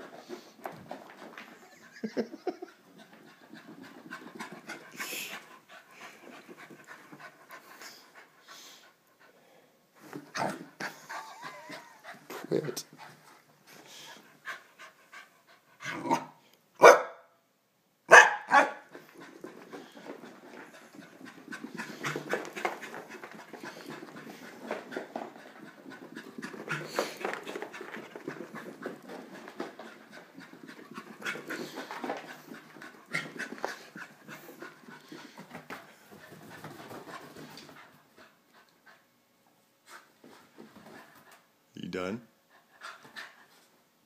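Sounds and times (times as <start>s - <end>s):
dog panting hard: 2.6s - 9.4s, 10.7s - 15.9s, 18.9s - 39.2s, 42.4s - 43.7s.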